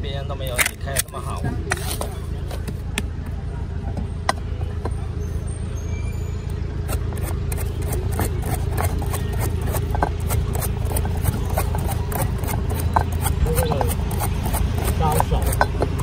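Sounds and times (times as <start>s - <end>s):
low background rumble: 0.0s - 16.0s
metal blade tapping coconut shell: 7.2s - 16.0s.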